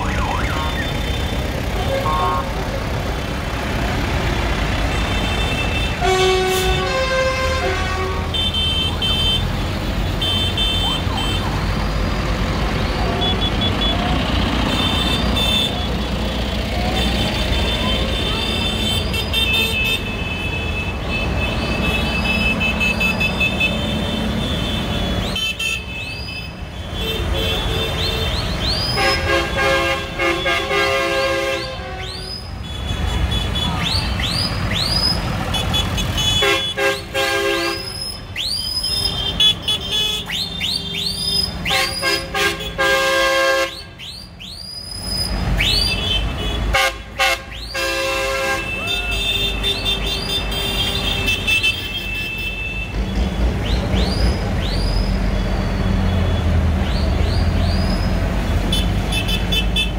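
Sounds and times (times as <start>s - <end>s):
tractor horns tooting: 0.0s - 2.8s, 4.9s - 11.4s, 16.9s - 34.2s, 35.2s - 38.0s, 39.0s - 40.4s, 41.5s - 44.0s, 45.7s - 53.1s, 58.6s - 59.9s
diesel engines running: 0.0s - 25.4s, 26.4s - 51.5s, 52.8s - 59.9s.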